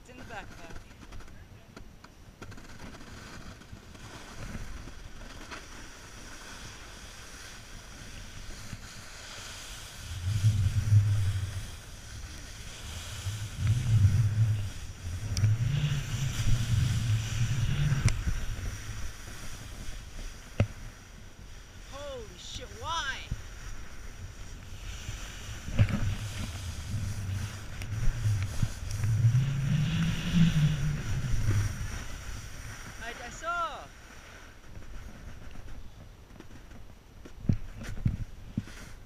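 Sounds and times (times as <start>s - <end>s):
snowboard scraping on snow: 2.5s - 39.0s
wind buffeting microphone: 10.0s - 21.9s, 23.1s - 33.2s.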